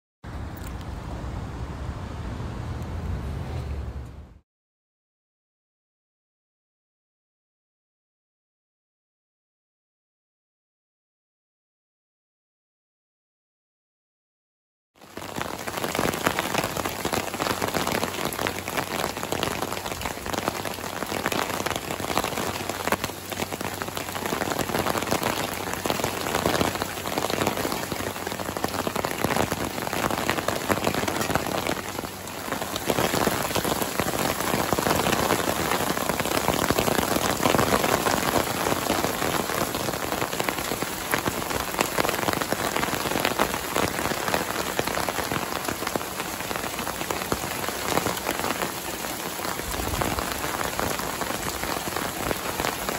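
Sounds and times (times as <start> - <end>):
heavy rain on foliage: 15.0 - 52.9.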